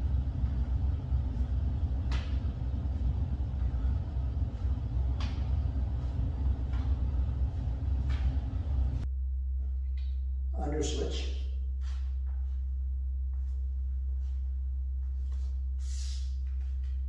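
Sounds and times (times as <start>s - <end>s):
low background rumble: 0.0s - 17.0s
hands and feet tapping on mat: 1.4s - 3.8s, 4.6s - 9.0s.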